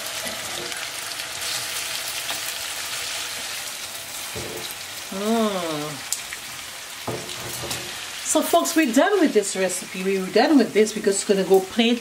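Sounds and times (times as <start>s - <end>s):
fish sizzling in a frying pan: 0.0s - 12.0s
person humming: 5.1s - 6.1s.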